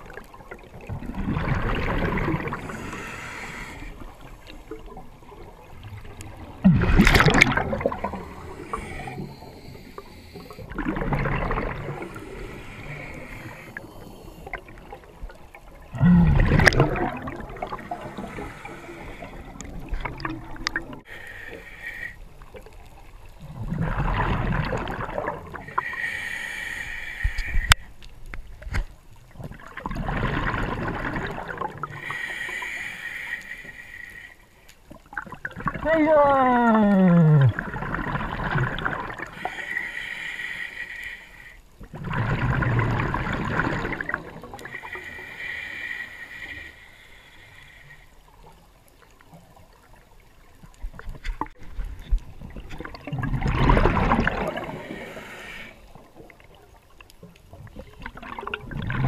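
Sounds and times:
water gurgling: 0:00.0 - 0:21.4, 0:22.4 - 0:26.1, 0:28.6 - 0:32.3, 0:34.9 - 0:40.0, 0:41.8 - 0:59.0
diver breathing with bubbles: 0:00.1 - 0:15.2, 0:15.8 - 0:22.7, 0:29.5 - 0:34.4, 0:35.4 - 0:48.7, 0:50.7 - 0:56.6.

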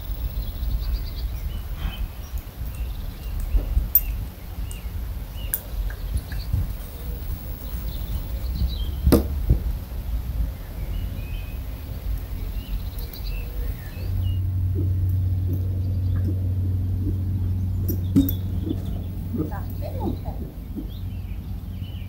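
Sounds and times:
small birds chirping: 0:00.0 - 0:22.0
steady low hum: 0:00.0 - 0:22.0
wind on microphone: 0:00.0 - 0:22.0
hoof striking wooden pole: 0:09.1 - 0:09.6, 0:17.0 - 0:20.9.

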